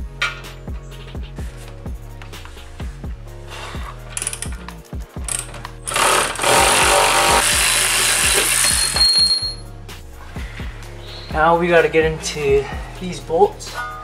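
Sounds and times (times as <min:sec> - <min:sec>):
background music with steady beat: 0:00.0 - 0:14.0
wrench clicking: 0:04.1 - 0:09.6
power tool running: 0:05.9 - 0:09.2.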